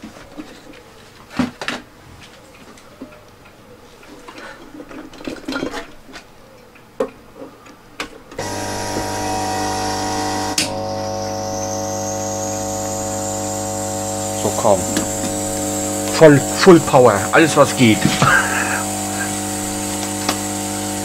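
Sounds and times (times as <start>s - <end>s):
hot-air blower running: 8.4s - 21.0s.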